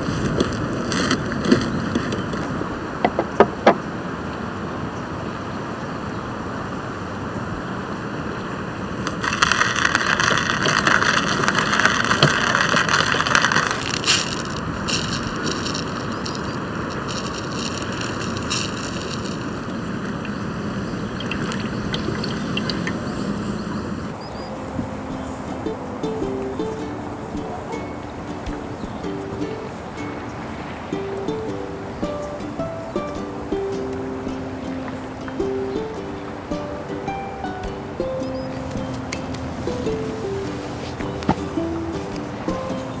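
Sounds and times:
outdoor background hiss: 0.0s - 43.0s
hand coffee grinder grinding: 9.1s - 19.7s
sharp crunches: 9.1s - 19.8s.

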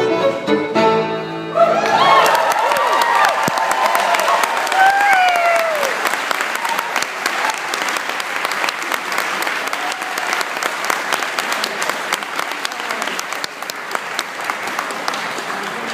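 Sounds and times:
audience applauding: 1.6s - 15.9s
voices in crowd: 14.6s - 15.9s.

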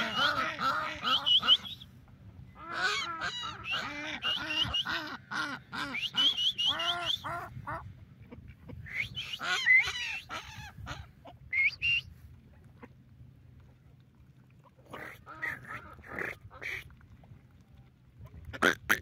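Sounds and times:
ducks quacking: 0.0s - 1.8s, 2.6s - 11.7s, 14.8s - 16.9s, 18.5s - 19.0s.

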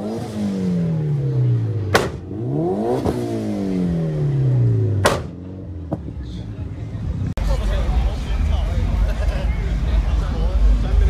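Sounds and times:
car engine revving: 0.0s - 11.0s
loud sharp cracks: 1.9s - 2.2s, 5.0s - 5.4s.

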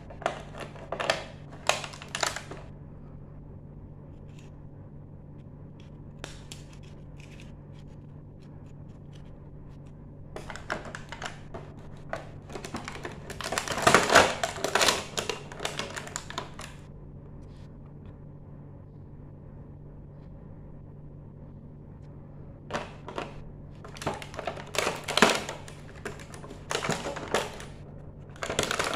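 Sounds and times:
plastic pieces clicking and rattling: 0.0s - 2.6s, 10.4s - 16.7s, 22.7s - 28.9s.

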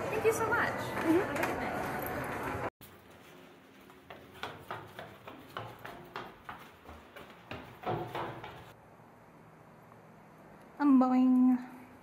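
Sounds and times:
footsteps climbing stairs: 2.4s - 8.8s.

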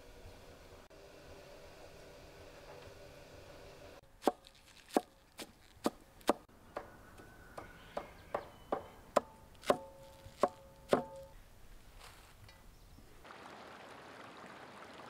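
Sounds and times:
knife chopping on wooden board: 7.6s - 11.2s.

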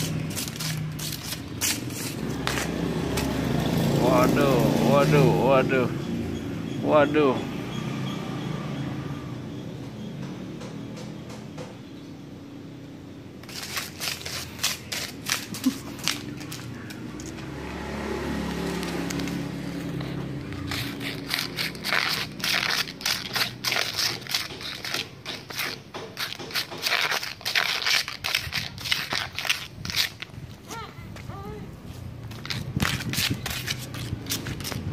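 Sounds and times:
dry leaves crackling on concrete: 0.0s - 5.2s, 13.4s - 34.9s.

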